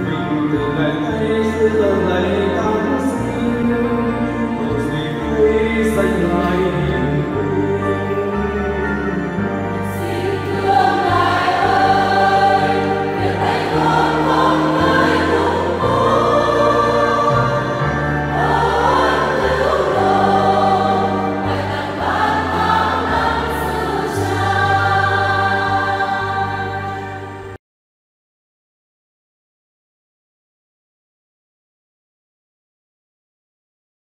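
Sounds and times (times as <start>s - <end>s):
choir singing a hymn: 0.0s - 27.6s
sustained low accompaniment: 0.0s - 27.6s.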